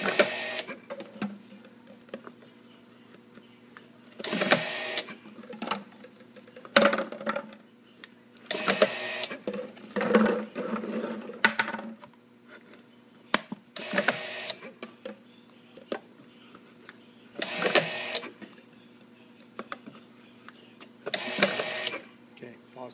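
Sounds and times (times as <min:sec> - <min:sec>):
bottle labeler running: 0:00.0 - 0:00.8, 0:04.2 - 0:07.6, 0:08.5 - 0:11.8, 0:13.8 - 0:14.7, 0:17.4 - 0:18.4, 0:21.1 - 0:22.1.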